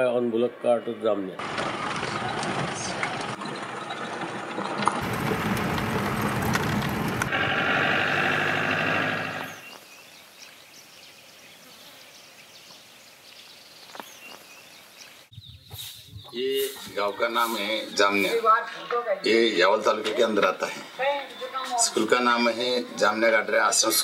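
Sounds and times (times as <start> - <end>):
faint outdoor background: 0.0 - 24.0
vehicle engine: 1.4 - 9.7
vehicle rattling over dirt track: 1.4 - 9.7
steady whining tone: 3.0 - 9.6.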